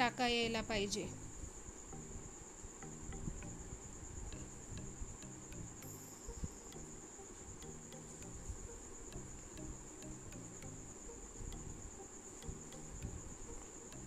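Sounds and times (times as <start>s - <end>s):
soft background music: 0.0s - 14.0s
high-pitched whine: 1.1s - 14.0s.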